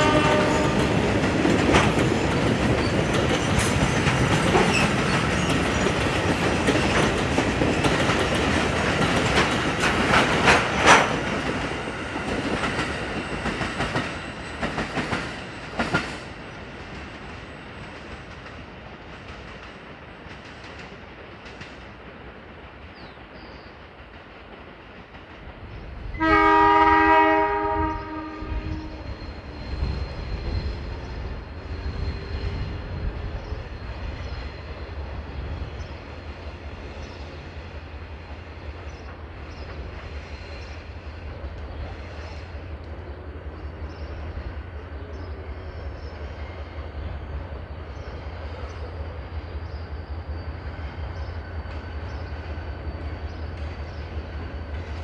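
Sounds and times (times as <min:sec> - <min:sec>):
locomotive horn blast: 0:00.0 - 0:01.0, 0:26.2 - 0:29.2
freight train rumbling: 0:00.0 - 0:55.0.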